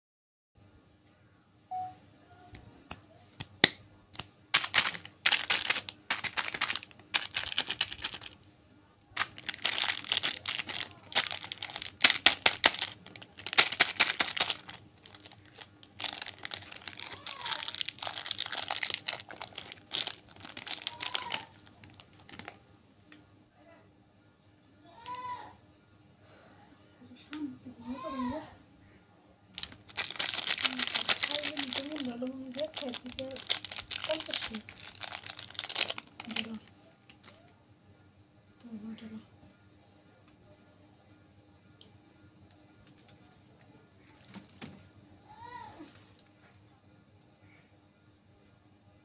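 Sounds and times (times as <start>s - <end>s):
plastic wrappers crinkling: 4.1s - 8.4s, 9.1s - 22.6s, 29.6s - 37.5s.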